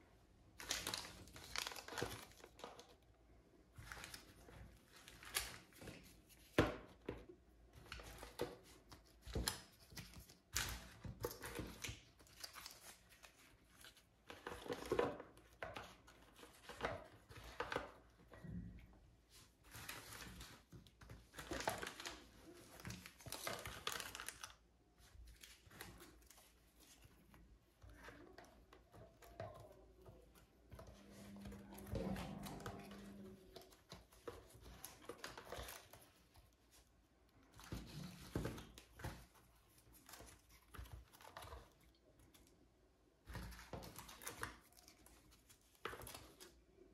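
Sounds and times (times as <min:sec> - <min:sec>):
plastic packets crinkling: 0:00.5 - 0:03.0, 0:19.6 - 0:27.2.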